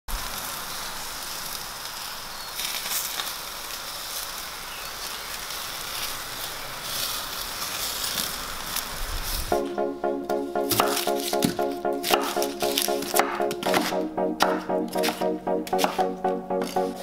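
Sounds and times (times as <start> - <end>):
skewers sizzling over charcoal: 0.1 - 9.5
coals crackling and popping: 0.3 - 9.0.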